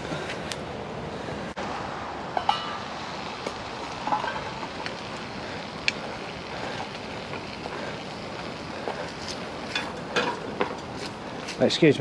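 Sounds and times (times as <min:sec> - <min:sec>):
meat sizzling in a pan: 0:02.8 - 0:11.5.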